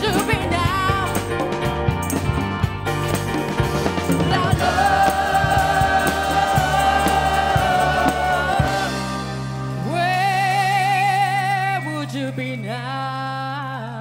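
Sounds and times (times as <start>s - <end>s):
drums: 0.0s - 13.6s
bass: 0.0s - 14.0s
singers harmonising: 4.3s - 11.9s.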